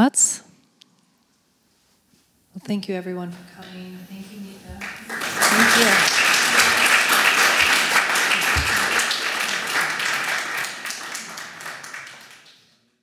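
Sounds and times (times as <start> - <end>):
audience applauding: 4.8 - 12.8.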